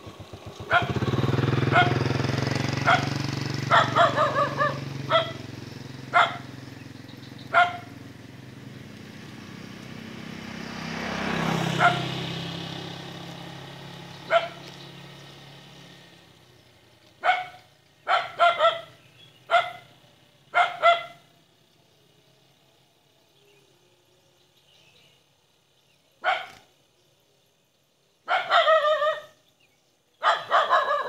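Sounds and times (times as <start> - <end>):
vehicle passing: 0.0 - 25.8, 30.3 - 31.0
dog barking: 0.7 - 1.0, 1.7 - 2.1, 2.8 - 5.4, 6.1 - 6.6, 7.5 - 8.0, 11.7 - 12.1, 14.3 - 14.6, 17.2 - 19.9, 20.5 - 21.3, 26.2 - 26.7, 28.2 - 29.4, 30.2 - 31.0.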